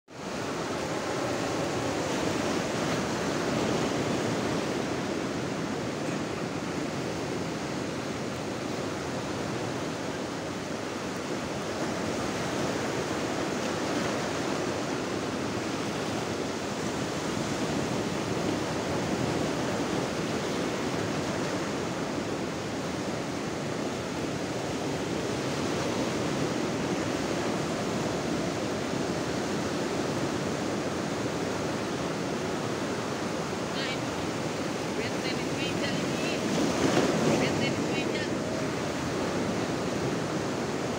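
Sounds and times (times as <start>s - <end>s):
sea surf washing over shore: 0.1s - 40.9s.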